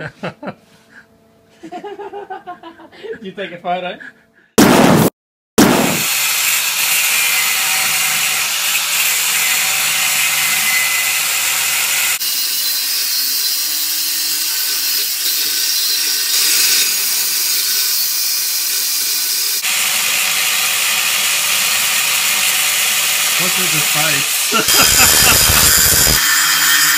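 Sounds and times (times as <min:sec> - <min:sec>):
angle grinder grinding steel: 0:06.0 - 0:26.9.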